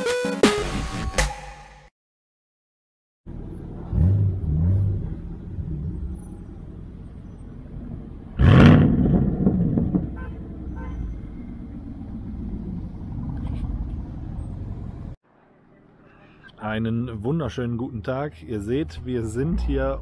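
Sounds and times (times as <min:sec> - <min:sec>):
car engine rumbling and revving: 0:03.3 - 0:15.2.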